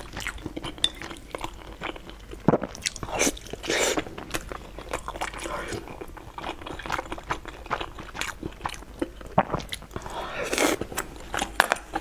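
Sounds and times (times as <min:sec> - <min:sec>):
wet chewing and lip-smacking: 0:00.0 - 0:12.0
slurping food: 0:03.1 - 0:04.1.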